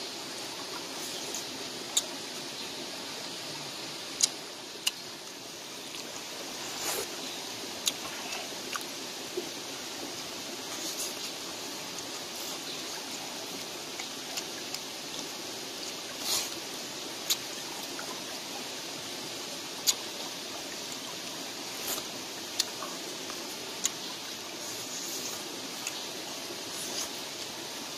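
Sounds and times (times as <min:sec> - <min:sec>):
stream flowing: 0:00.0 - 0:27.9.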